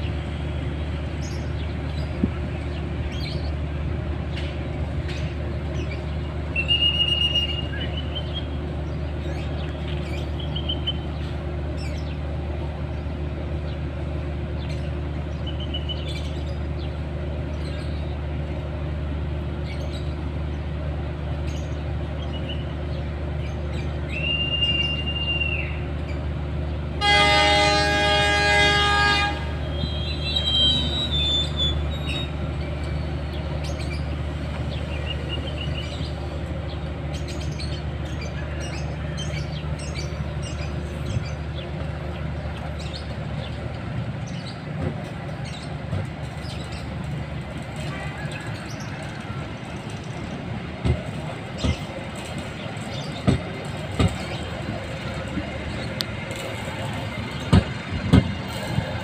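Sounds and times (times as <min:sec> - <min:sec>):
diesel locomotive idling: 0:00.0 - 0:59.0
locomotive horn: 0:26.9 - 0:31.8.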